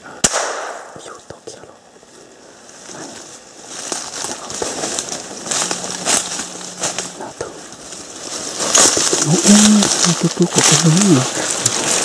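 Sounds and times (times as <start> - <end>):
faint low hum: 0.0 - 12.0
dry grass rustling underfoot: 2.0 - 12.0.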